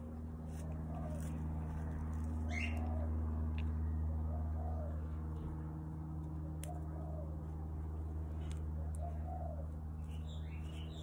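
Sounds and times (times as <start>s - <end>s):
steady low hum: 0.0s - 11.0s
small bird chirp: 2.4s - 2.9s, 9.0s - 11.0s
pigeon cooing: 4.2s - 5.6s, 6.7s - 7.4s, 8.7s - 11.0s.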